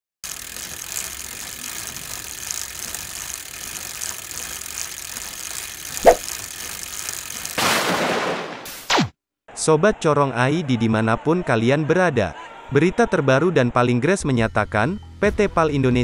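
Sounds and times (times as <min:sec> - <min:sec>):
mechanical ratcheting with hiss: 0:00.2 - 0:07.6.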